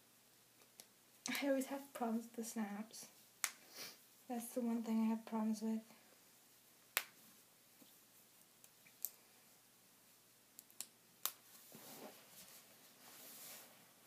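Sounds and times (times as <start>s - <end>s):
fabric rustling: 11.5s - 14.0s.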